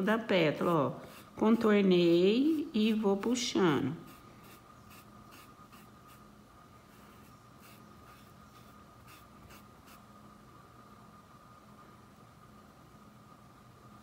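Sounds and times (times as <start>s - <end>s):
faint steady whine: 0.0s - 14.0s
paintbrush scratching on cloth: 0.6s - 10.1s.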